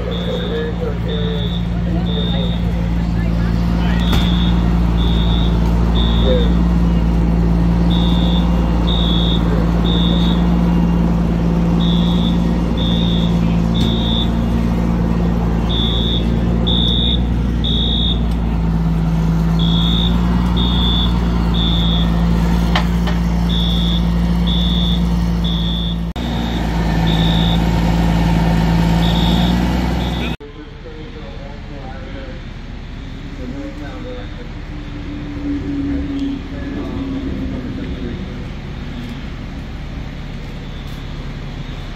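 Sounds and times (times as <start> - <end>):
fire alarm beeping: 0.0 - 2.8, 4.0 - 7.2, 7.9 - 11.1, 11.8 - 14.5, 15.6 - 18.3, 19.6 - 22.2, 23.5 - 26.1, 27.0 - 27.6, 29.0 - 30.4
diesel fire truck idling: 0.0 - 41.9.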